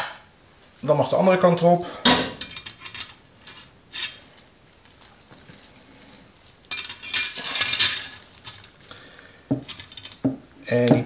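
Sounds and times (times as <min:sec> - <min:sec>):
metal clinking: 0:06.6 - 0:08.7.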